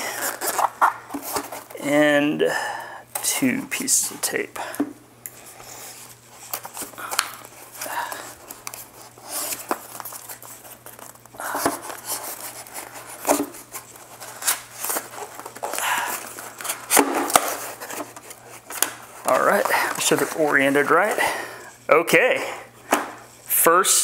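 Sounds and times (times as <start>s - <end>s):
paper tearing and crinkling: 0.0s - 1.8s, 5.5s - 21.5s.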